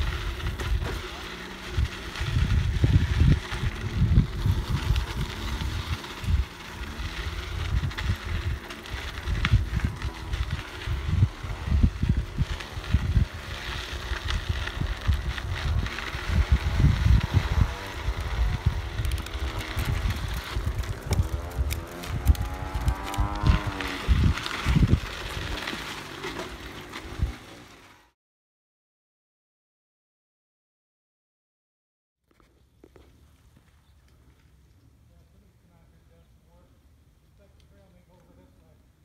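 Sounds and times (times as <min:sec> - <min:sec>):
wind buffeting microphone: 0:00.0 - 0:25.7
bike rattling: 0:00.0 - 0:28.1
tyre noise on dirt trail: 0:00.0 - 0:28.2, 0:32.2 - 0:39.0.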